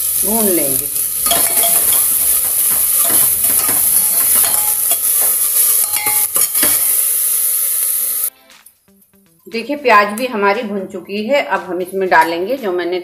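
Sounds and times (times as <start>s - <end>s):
onions sizzling in oil: 0.0s - 8.3s.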